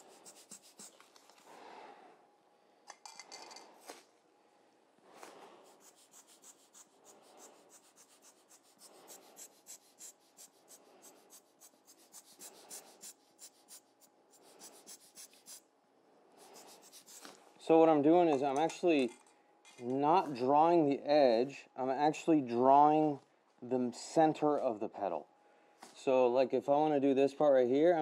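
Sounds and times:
paintbrush scratching paper: 0.0s - 1.4s, 5.6s - 15.6s, 16.4s - 17.4s.

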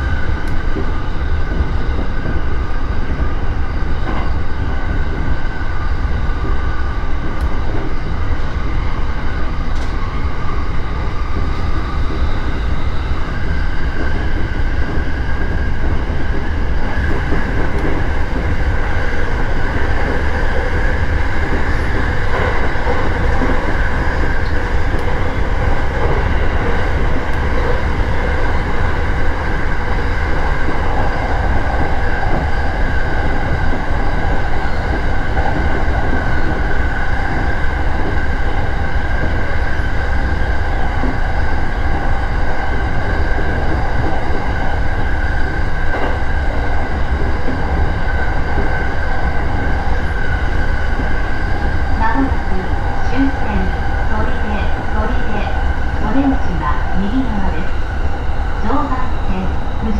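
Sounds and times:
train wheels rumbling on rail: 0.0s - 59.9s
steady high hum: 46.2s - 59.9s.

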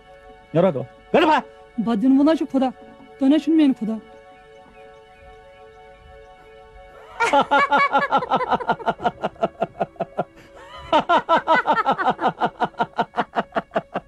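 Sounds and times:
faint background music: 0.0s - 14.0s
person laughing: 7.0s - 14.0s.

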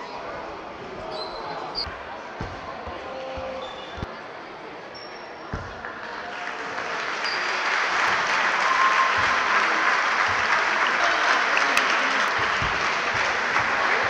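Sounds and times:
crowd applauding: 5.7s - 14.0s.

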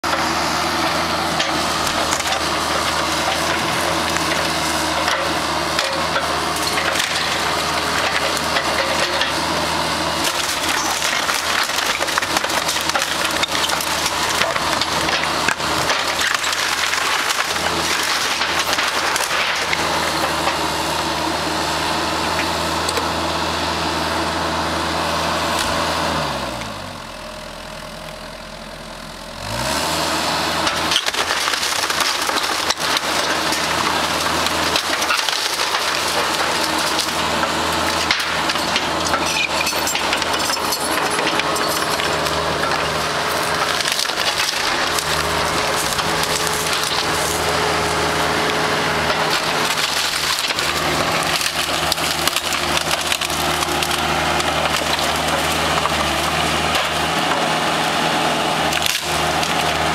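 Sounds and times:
wood cracking and splintering: 0.0s - 23.2s, 29.5s - 59.9s
excavator diesel engine: 0.0s - 59.9s.

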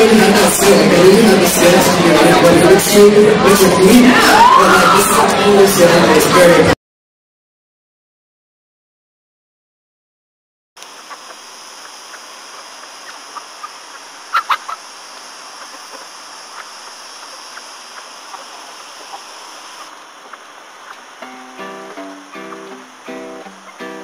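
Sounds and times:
hens clucking: 10.8s - 24.0s
steady hiss: 10.8s - 24.0s.

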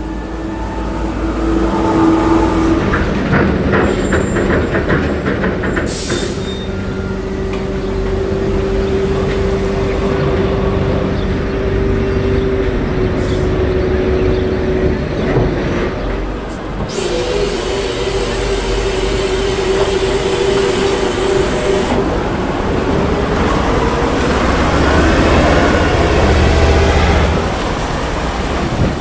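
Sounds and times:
heavy vehicle engine running: 16.0s - 29.0s.

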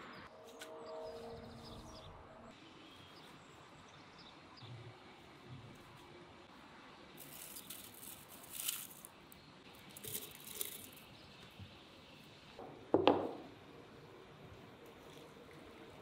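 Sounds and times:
herb leaves rustling and crackling: 7.2s - 11.1s.

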